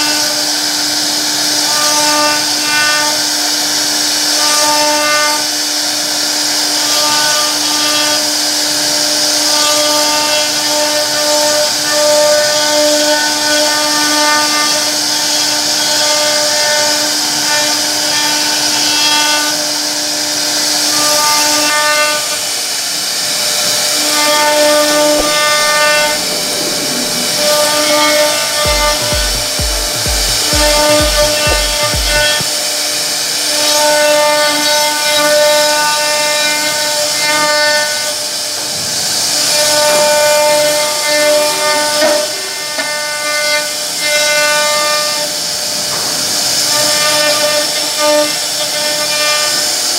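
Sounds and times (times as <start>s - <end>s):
router spindle whine: 0.0s - 33.8s.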